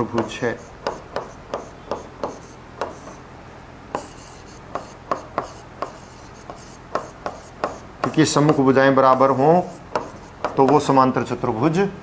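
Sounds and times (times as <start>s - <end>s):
pen tapping on a screen: 0.1s - 3.2s, 3.9s - 9.3s, 9.9s - 10.8s
pen scraping strokes: 0.4s - 3.2s, 4.0s - 8.6s, 9.2s - 10.5s.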